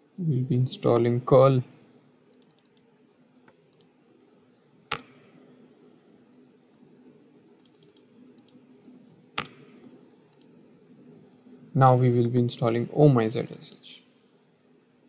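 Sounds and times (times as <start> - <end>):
faint steady hum: 0.0 - 15.0
keyboard and mouse clicks: 2.3 - 2.9, 3.5 - 4.3, 4.9 - 5.2, 7.6 - 10.6.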